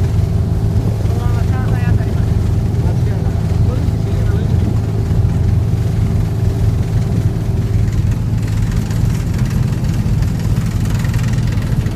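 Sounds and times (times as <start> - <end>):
boat engine drone: 0.0 - 11.9
water rushing from wake: 0.0 - 11.9.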